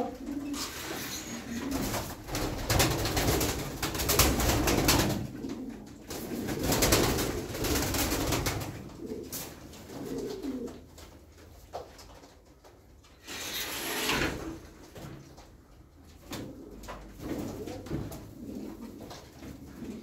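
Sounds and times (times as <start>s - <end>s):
pigeons cooing: 0.0s - 2.8s, 4.2s - 7.6s, 8.5s - 10.8s
clattering wingbeats: 0.5s - 5.3s.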